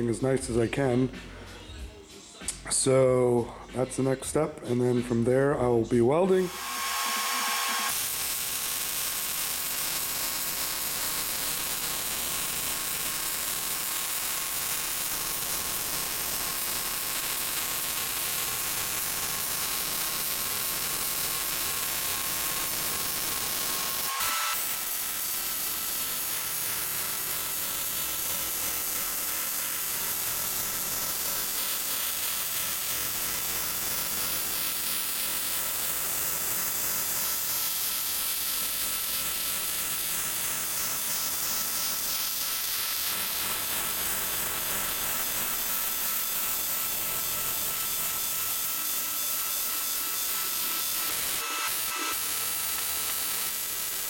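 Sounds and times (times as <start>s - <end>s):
thin high whine: 6.2s - 9.4s
welding arc hissing: 6.3s - 54.0s.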